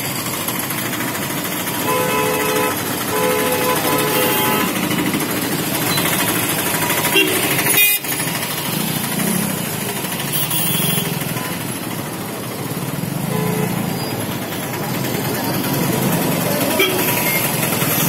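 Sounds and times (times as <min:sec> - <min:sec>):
motorbike engines running: 0:00.0 - 0:18.0.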